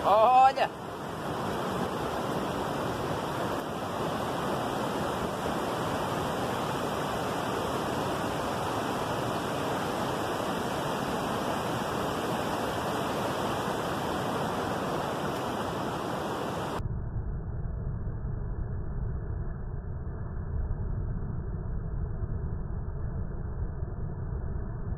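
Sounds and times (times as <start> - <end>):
river water over rapids: 0.0 - 16.8
muffled low rumble: 16.8 - 24.9.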